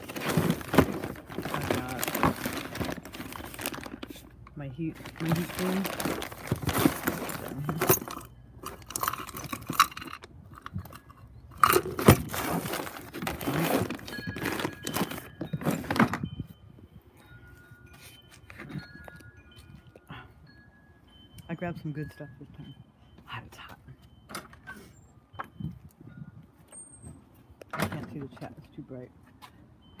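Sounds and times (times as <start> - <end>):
plastic crinkling and rustling: 0.0 - 9.8, 11.7 - 16.2
knocks and clinks: 5.1 - 16.5.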